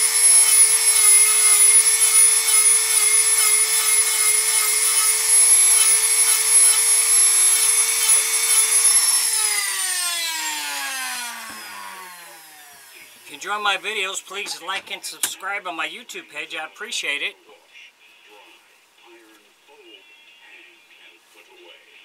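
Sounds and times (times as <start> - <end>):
rotary tool whining on wood: 0.0 - 13.2.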